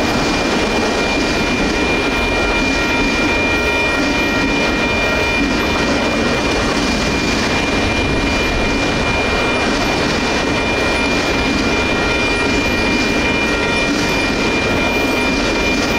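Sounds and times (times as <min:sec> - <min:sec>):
freight cars rolling on rails: 0:00.0 - 0:15.9
high ringing tone: 0:00.0 - 0:15.9.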